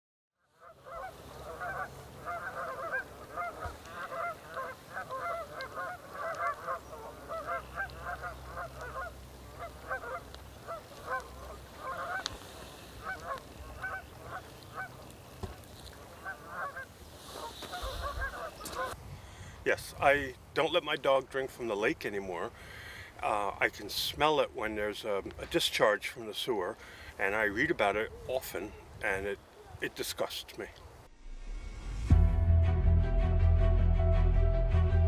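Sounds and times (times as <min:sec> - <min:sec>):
geese honking: 0:00.5 - 0:19.0.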